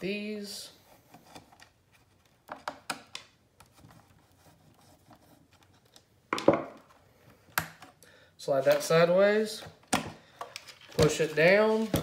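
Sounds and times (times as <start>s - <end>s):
plastic parts clattering: 9.8s - 12.0s.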